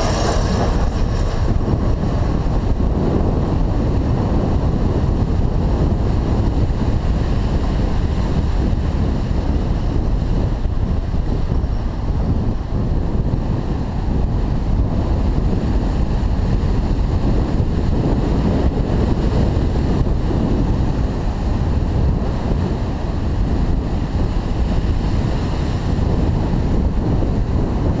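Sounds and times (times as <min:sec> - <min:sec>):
surf breaking on rocky shore: 0:00.0 - 0:28.0
wind buffeting microphone: 0:00.0 - 0:28.0.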